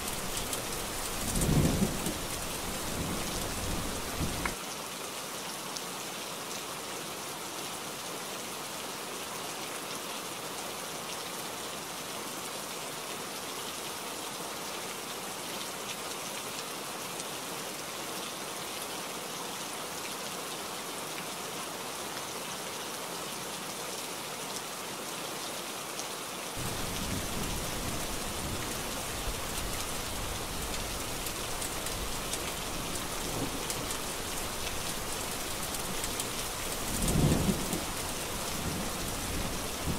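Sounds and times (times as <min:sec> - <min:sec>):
heavy rain on hard surfaces: 0:00.0 - 0:39.9
low rumble of thunder: 0:00.1 - 0:04.6, 0:26.6 - 0:32.2, 0:36.8 - 0:39.9.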